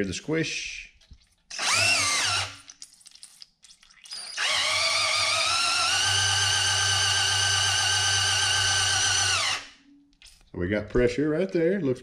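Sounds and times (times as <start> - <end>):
cordless drill motor whine: 1.5 - 2.6, 4.4 - 9.7.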